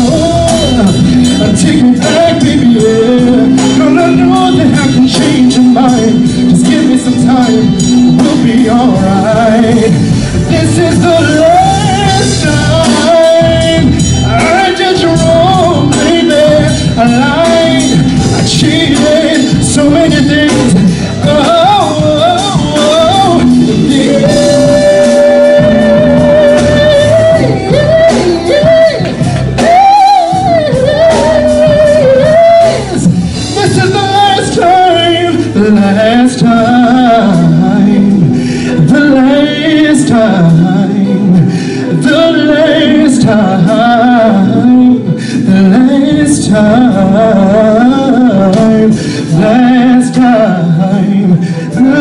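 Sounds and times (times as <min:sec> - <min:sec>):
drum kit: 0:00.0 - 0:52.0
keyboard: 0:00.0 - 0:52.0
man singing vocal runs: 0:00.0 - 0:52.0.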